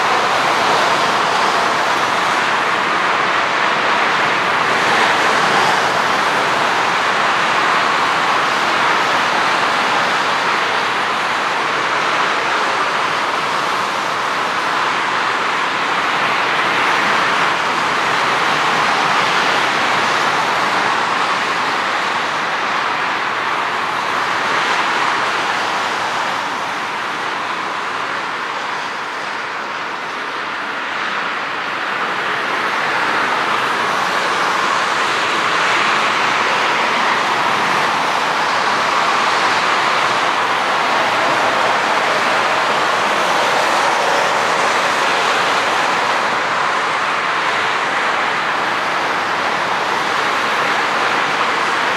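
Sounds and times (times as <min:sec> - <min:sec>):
distant jet engines rushing: 0:00.0 - 0:30.7, 0:31.3 - 0:51.9.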